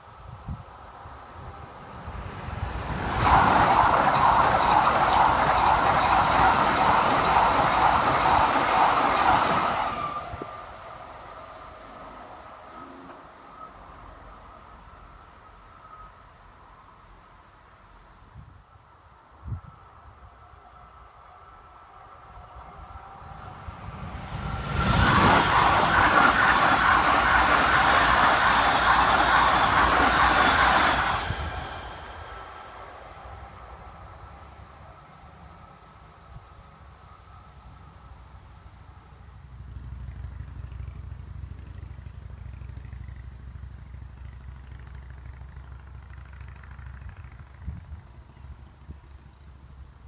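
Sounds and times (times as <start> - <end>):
electric train passing: 0.0 - 50.0
wind buffeting microphone: 22.6 - 33.6, 47.0 - 49.2.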